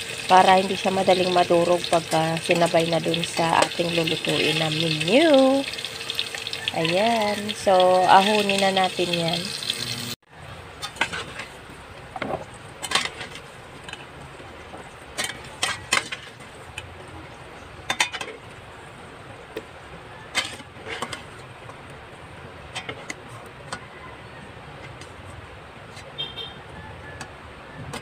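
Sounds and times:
metal spatula scraping a pan: 0:10.8 - 0:11.6, 0:12.8 - 0:14.0, 0:20.3 - 0:21.4.

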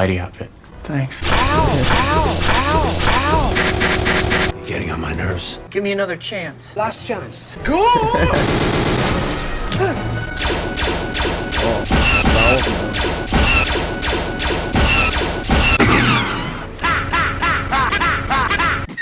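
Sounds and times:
orchestral music: 0:01.2 - 0:05.7, 0:07.6 - 0:17.4.

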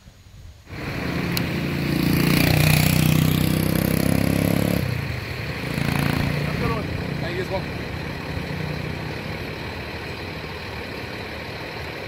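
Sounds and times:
vehicle engine running: 0:00.7 - 0:12.0.

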